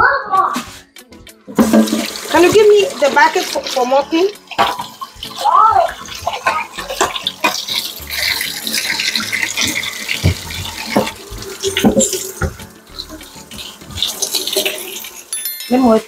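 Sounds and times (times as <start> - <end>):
water running from a tap: 1.5 - 16.0
sharp knocks and clatters: 4.5 - 5.4, 9.6 - 12.7.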